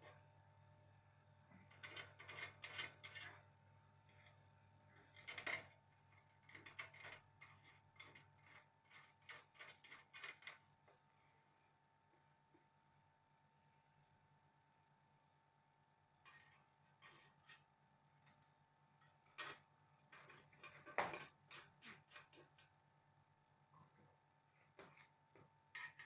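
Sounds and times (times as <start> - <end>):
small metal clicks and taps: 24.8 - 26.0.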